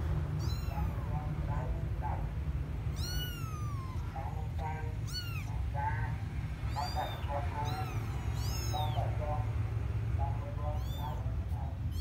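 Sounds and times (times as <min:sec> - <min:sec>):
steady low hum: 0:00.0 - 0:12.0
kittens mewing: 0:00.3 - 0:01.4, 0:02.8 - 0:09.5, 0:10.7 - 0:12.0.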